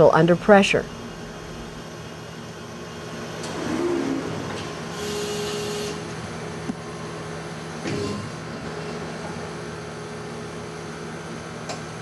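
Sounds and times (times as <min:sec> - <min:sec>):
factory machinery hum: 0:00.0 - 0:12.0
small click: 0:11.7 - 0:11.9.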